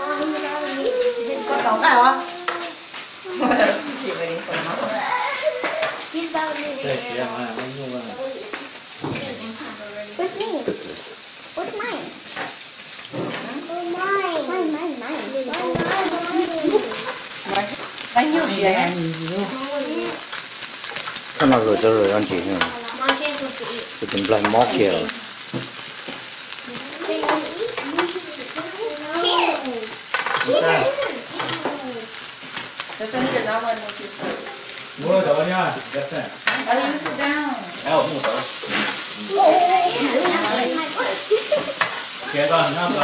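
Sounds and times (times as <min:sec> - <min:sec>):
people talking: 0:00.0 - 0:02.7, 0:03.3 - 0:08.5, 0:13.4 - 0:20.2, 0:21.4 - 0:25.1, 0:26.7 - 0:32.1, 0:33.0 - 0:34.4, 0:39.2 - 0:43.0
meat sizzling on grill plate: 0:00.0 - 0:43.0.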